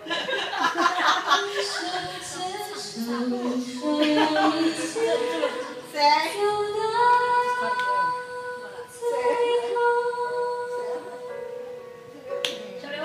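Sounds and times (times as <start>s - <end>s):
woman singing karaoke: 1.2s - 11.7s.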